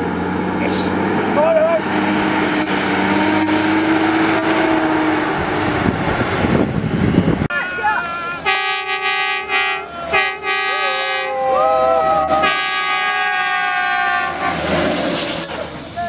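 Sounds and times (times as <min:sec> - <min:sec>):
air horn blasts: 0:03.0 - 0:05.0, 0:07.5 - 0:15.2
people calling out: 0:07.5 - 0:08.8, 0:09.4 - 0:14.5.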